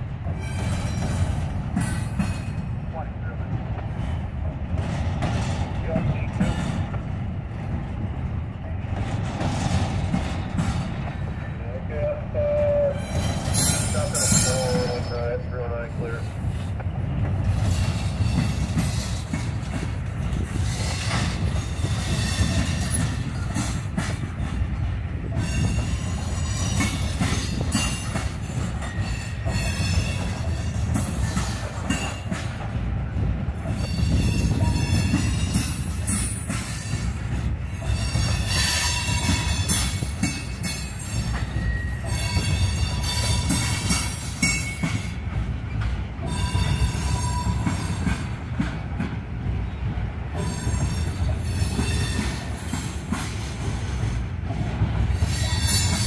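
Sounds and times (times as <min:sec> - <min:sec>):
train wheels rumbling on rails: 0:00.0 - 0:56.0
high wheel squeals: 0:41.0 - 0:43.6.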